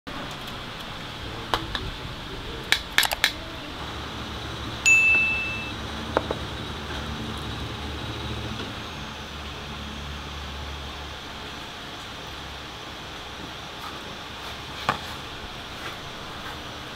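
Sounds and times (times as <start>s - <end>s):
low hum: 3.3s - 13.3s
ringing struck metal: 4.9s - 5.8s.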